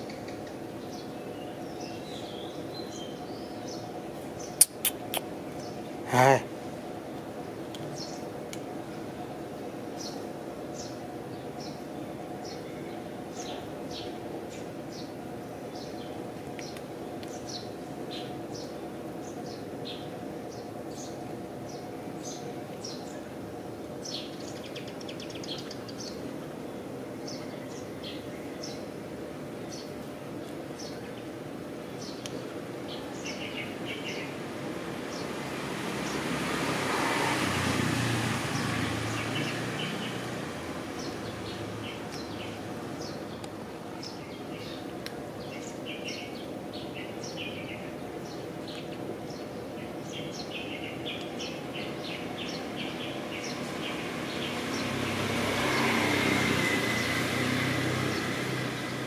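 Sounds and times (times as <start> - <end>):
small birds chirping: 0.0 - 29.0, 29.6 - 59.0
motor vehicle passing: 33.6 - 43.4, 52.0 - 59.0.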